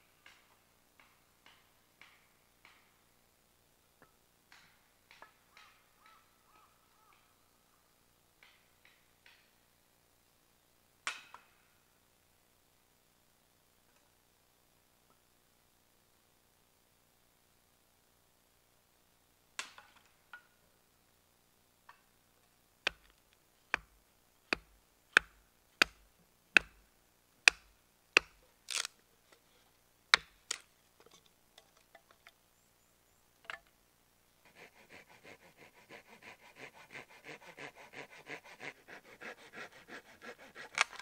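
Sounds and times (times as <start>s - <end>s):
hatchet splitting wood: 22.9s - 26.8s, 27.5s - 29.0s, 30.1s - 30.7s, 34.4s - 41.0s
hand saw rasping: 34.5s - 41.0s.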